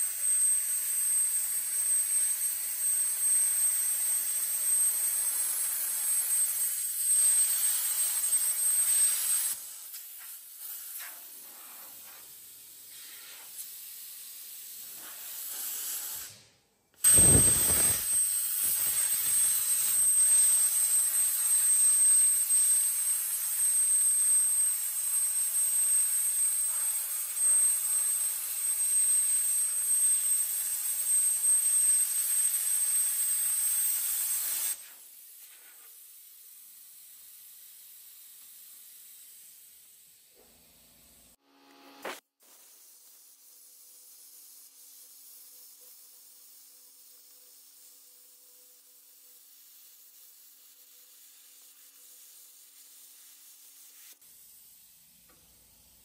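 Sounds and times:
cutting torch hissing: 3.2s - 23.9s
thin high whine: 17.0s - 33.1s.

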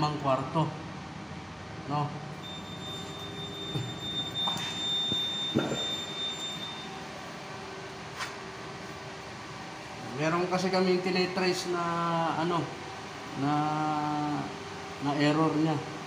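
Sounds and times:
room hum: 0.0s - 16.0s
high-pitched electronic beep: 2.4s - 7.0s.

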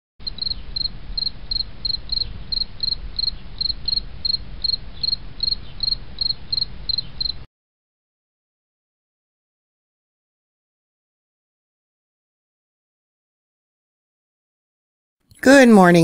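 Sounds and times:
low steady rumble: 0.2s - 7.4s
cricket chirping: 0.2s - 7.5s.

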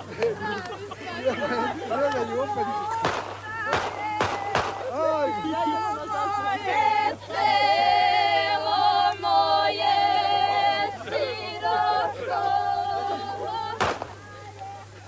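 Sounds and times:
group singing unaccompanied: 0.0s - 15.0s.

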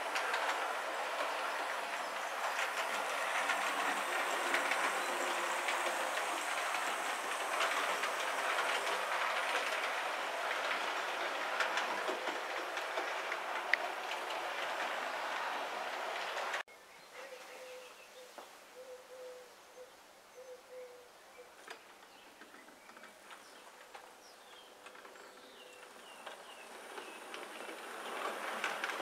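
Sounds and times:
model train running on track: 0.0s - 16.6s, 22.0s - 29.0s
wheels clicking over rail joints: 0.0s - 16.6s, 21.5s - 29.0s.

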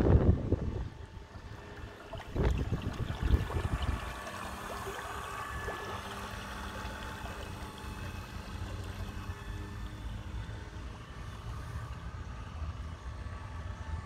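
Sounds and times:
wind buffeting microphone: 0.0s - 5.9s
faint steady hum: 0.0s - 14.0s
water lapping: 1.2s - 10.1s.

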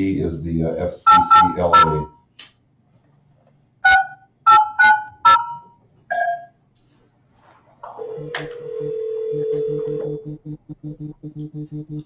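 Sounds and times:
telephone ringback tone: 1.1s - 2.1s, 8.0s - 10.3s.

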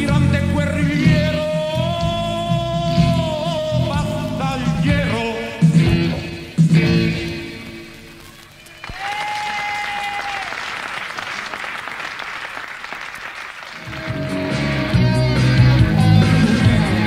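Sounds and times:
live band playing: 0.0s - 8.9s, 13.8s - 17.0s
audience applause: 8.2s - 15.0s.

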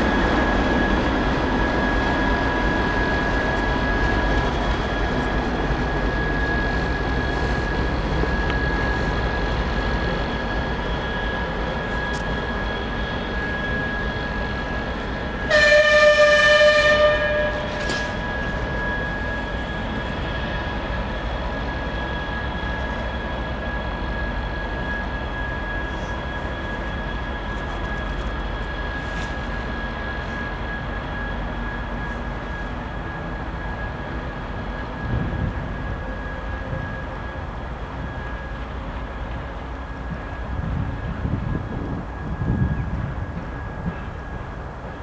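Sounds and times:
diesel locomotive engine whining: 0.0s - 45.0s
locomotive horn blast: 15.5s - 18.2s.

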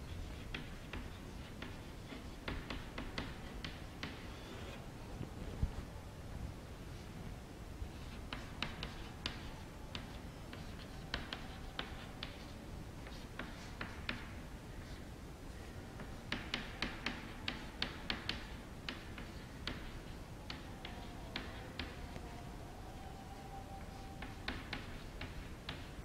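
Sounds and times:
chalk tapping and scratching on chalkboard: 0.0s - 4.2s, 7.9s - 15.0s, 16.0s - 22.0s, 23.8s - 26.0s.

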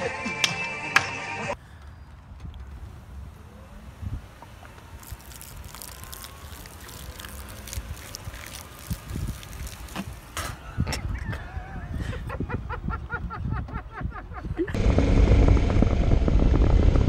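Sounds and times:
liquid splashing: 4.9s - 10.4s
wind buffeting microphone: 7.7s - 17.0s.

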